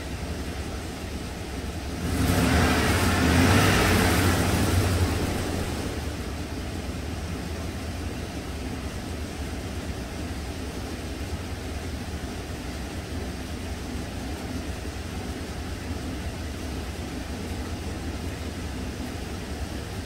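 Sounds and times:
truck engine idling: 0:00.0 - 0:20.0
rushing swell: 0:02.1 - 0:06.4.

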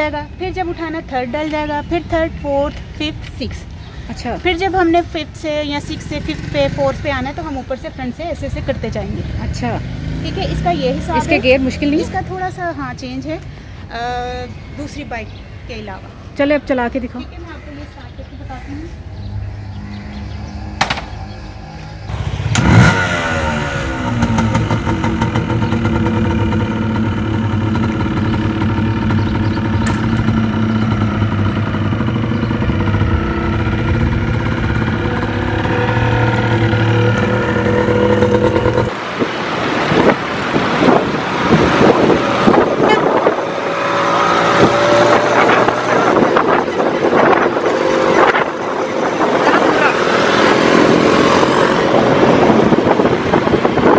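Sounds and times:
traffic noise: 0:00.0 - 0:53.9
motorcycle engine revving and idling: 0:05.4 - 0:13.2, 0:19.2 - 0:38.9, 0:41.6 - 0:53.9
wind noise: 0:22.5 - 0:53.9.

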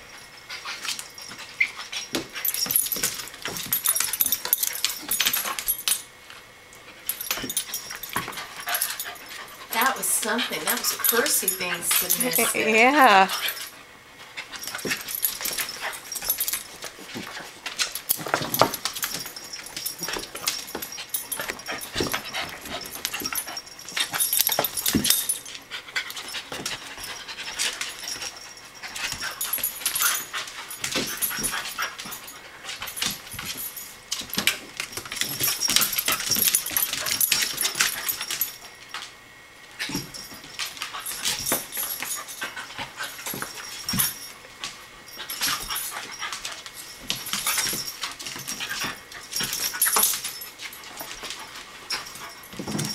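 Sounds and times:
dogs scuffling on vinyl floor: 0:00.0 - 0:52.9
dogs panting: 0:06.8 - 0:34.4, 0:39.8 - 0:44.3, 0:45.0 - 0:52.9.

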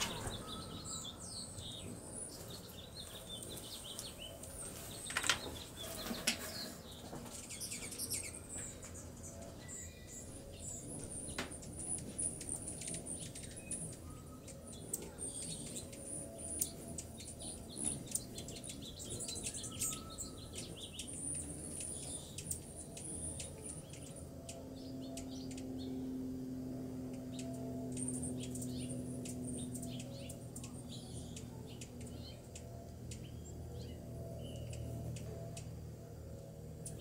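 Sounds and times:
hummingbirds chipping and twittering: 0:00.0 - 0:37.0
low steady drone: 0:00.0 - 0:37.0.

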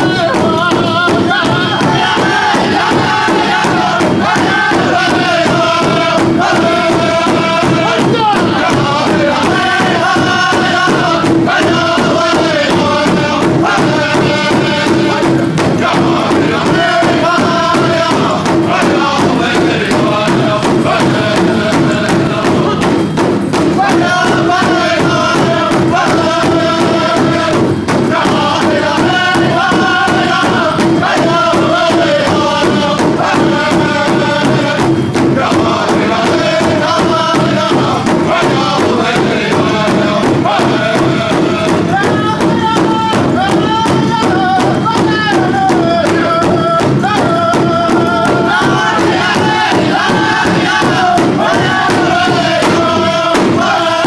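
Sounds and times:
group chanting: 0:00.0 - 0:54.0
large drum beat: 0:00.0 - 0:54.0.

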